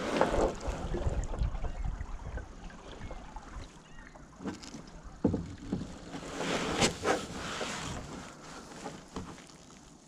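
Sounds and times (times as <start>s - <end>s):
paddle splashing in water: 0.0s - 10.0s
paddle knocks: 4.4s - 8.2s, 8.8s - 9.4s.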